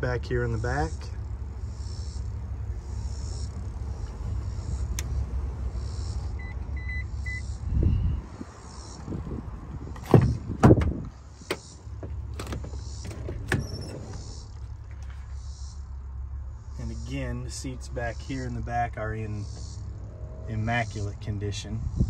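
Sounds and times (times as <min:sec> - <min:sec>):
electric seat motors humming: 0:00.5 - 0:15.0
short beeps: 0:06.0 - 0:07.5.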